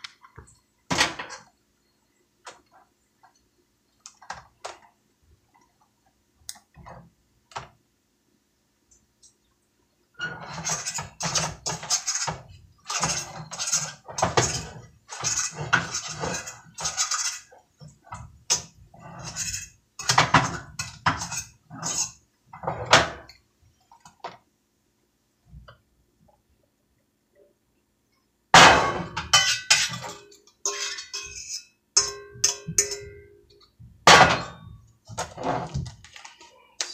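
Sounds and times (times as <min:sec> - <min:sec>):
utensil scraping a frying pan: 0:10.2 - 0:23.2, 0:28.6 - 0:33.1.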